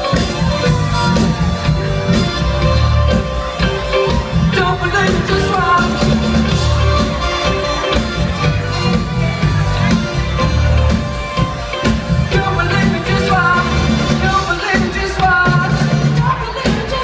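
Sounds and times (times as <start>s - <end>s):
live band playing funk-pop: 0.0s - 17.0s
person singing: 3.6s - 8.0s, 11.8s - 17.0s.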